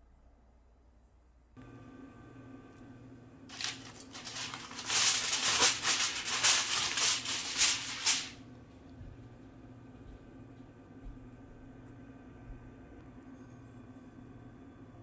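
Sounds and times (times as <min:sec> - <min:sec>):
steady low hum: 0:00.0 - 0:15.0
aluminium foil crinkling: 0:03.5 - 0:08.4.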